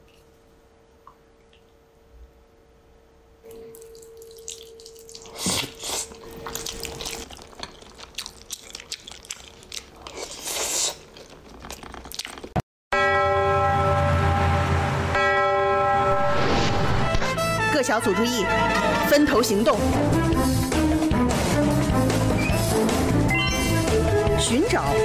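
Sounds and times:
water dripping and splashing: 0:03.5 - 0:05.8
music with bell-like tones: 0:22.4 - 0:25.0.

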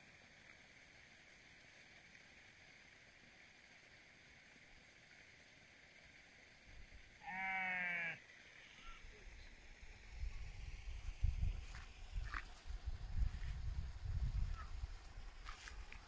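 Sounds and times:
faint outdoor background: 0:00.0 - 0:16.0
sheep or goat bleating: 0:07.2 - 0:08.2.

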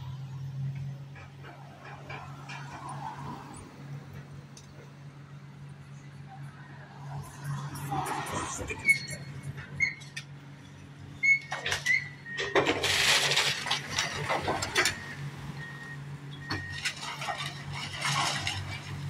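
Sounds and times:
excavator diesel engine running: 0:00.0 - 0:19.0
debris crashing down: 0:11.5 - 0:15.2, 0:16.5 - 0:19.0.

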